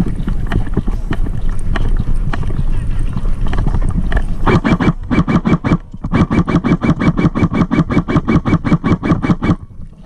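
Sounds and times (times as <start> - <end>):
airsoft gun firing bursts: 4.5 - 9.6.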